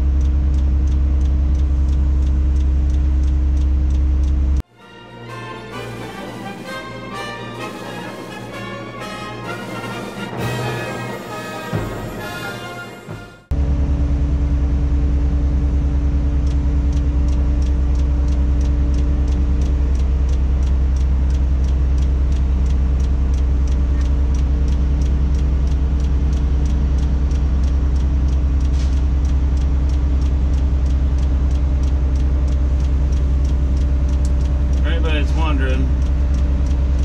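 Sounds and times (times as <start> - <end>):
faint regular ticking: 0.0 - 4.6, 16.1 - 37.0
diesel engine low drone: 0.0 - 37.0.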